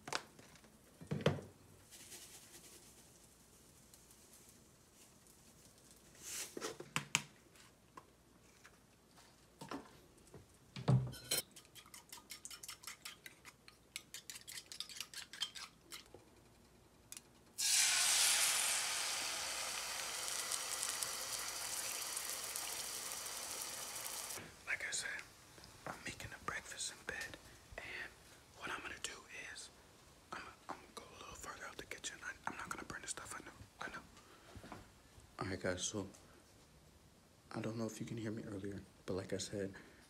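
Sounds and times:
fork beating eggs in bowl: 11.4s - 16.4s
eggs sizzling in frying pan: 17.6s - 24.4s.

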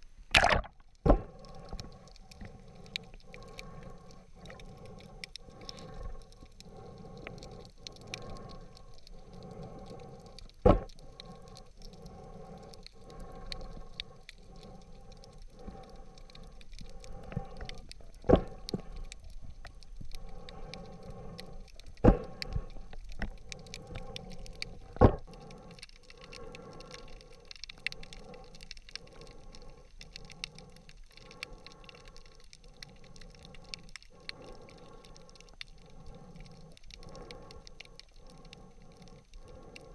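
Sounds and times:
faint crackling: 0.0s - 39.9s.

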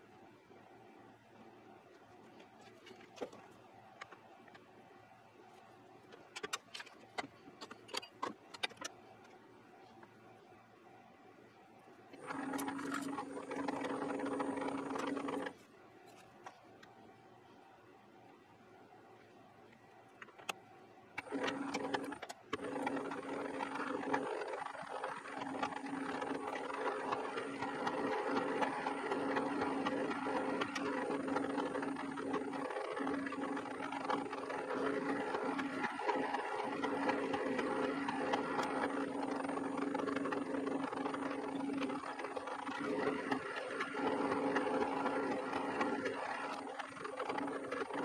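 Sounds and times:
steady gear noise: 12.2s - 15.6s, 21.2s - 48.0s
metal lathe running: 21.2s - 48.0s.

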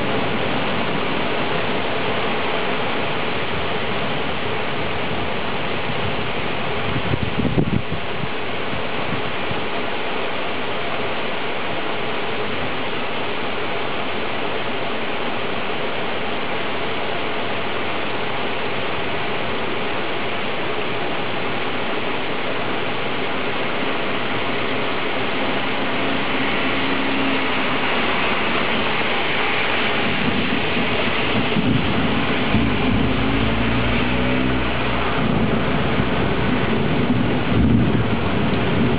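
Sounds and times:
heavy rain falling: 0.0s - 38.9s
low thunder rumble: 22.5s - 38.9s.

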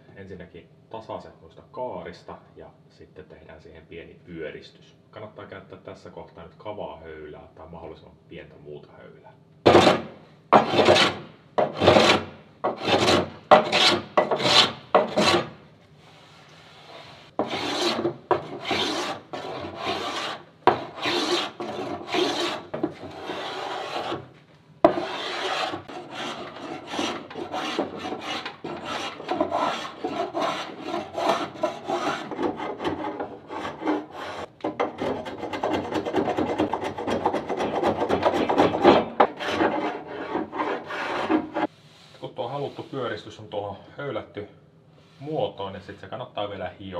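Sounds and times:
spokeshave shaving wood: 9.7s - 15.5s, 17.4s - 24.2s, 24.9s - 41.7s
block plane shaving wood: 9.7s - 15.6s, 17.3s - 24.3s, 24.9s - 41.7s.

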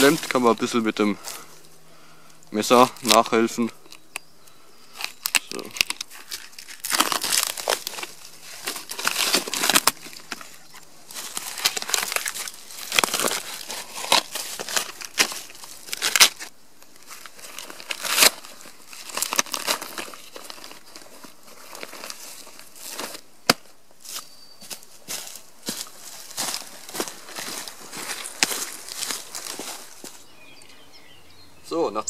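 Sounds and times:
bark tearing and crackling: 4.9s - 23.6s, 25.1s - 30.2s.

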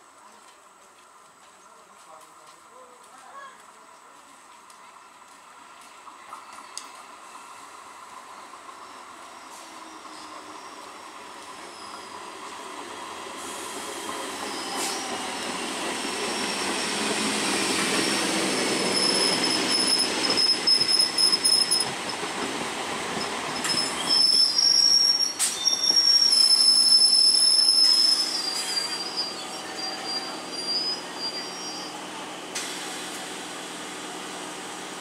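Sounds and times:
train wheels on rails: 0.0s - 35.0s
high-pitched wheel squeal: 11.6s - 12.2s, 14.4s - 15.5s, 18.0s - 21.9s, 23.6s - 32.0s.

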